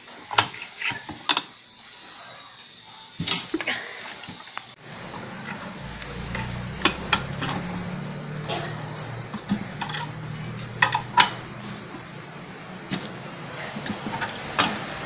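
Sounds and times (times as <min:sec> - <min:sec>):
low steady hum: 0:04.8 - 0:15.0.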